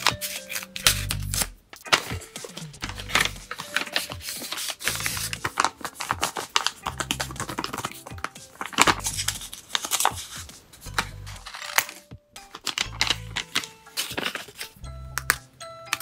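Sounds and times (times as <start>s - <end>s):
paper rustling and crackling: 0.0s - 14.8s
background music with bass: 0.8s - 3.8s, 4.9s - 5.7s, 6.8s - 9.6s, 10.8s - 11.5s, 12.8s - 13.6s, 14.8s - 16.0s.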